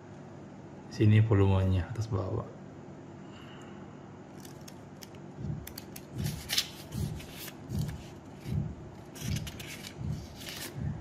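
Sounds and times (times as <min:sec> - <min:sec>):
paper pages flipping: 0:04.4 - 0:10.8.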